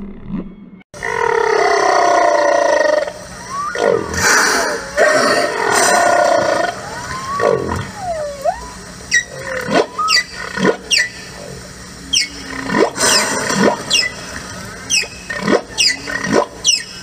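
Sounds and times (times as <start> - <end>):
steady low hum: 0.0 - 17.0
squealing animal calls: 1.0 - 11.2.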